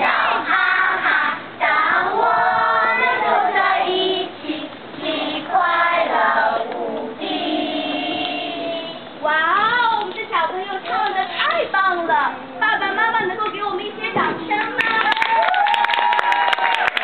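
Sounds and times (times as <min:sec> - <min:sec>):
children and woman singing: 0:00.0 - 0:11.4.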